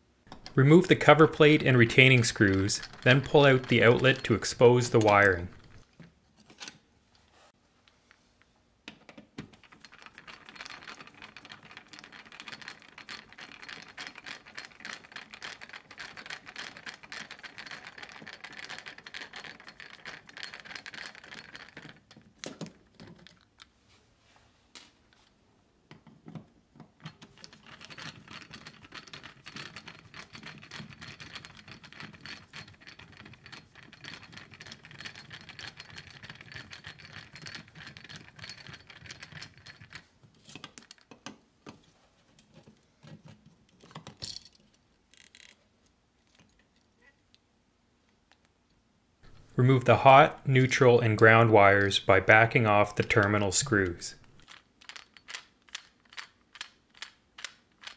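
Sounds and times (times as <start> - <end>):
screwdriver turning screws: 0.3 - 5.8.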